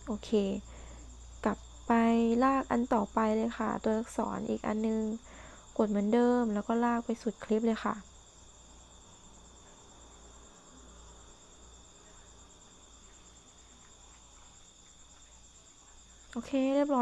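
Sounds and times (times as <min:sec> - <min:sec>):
high-pitched insect trill: 0:00.0 - 0:17.0.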